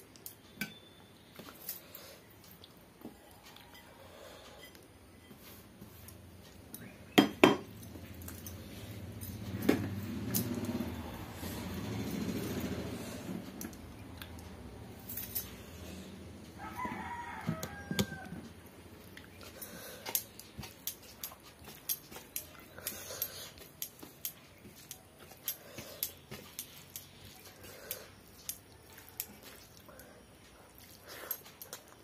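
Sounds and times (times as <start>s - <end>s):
bangles clinking: 6.0s - 16.0s, 19.4s - 32.0s
rooster crowing: 16.5s - 18.6s.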